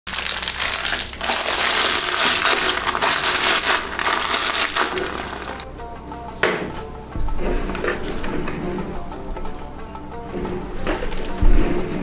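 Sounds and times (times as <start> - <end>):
plastic bag crinkling: 0.1 - 5.7.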